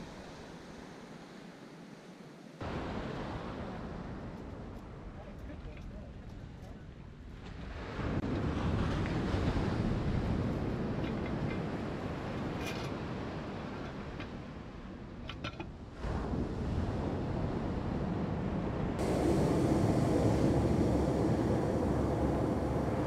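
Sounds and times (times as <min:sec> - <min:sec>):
surf washing: 0:00.0 - 0:06.1, 0:07.4 - 0:23.0
wind buffeting microphone: 0:02.6 - 0:23.0.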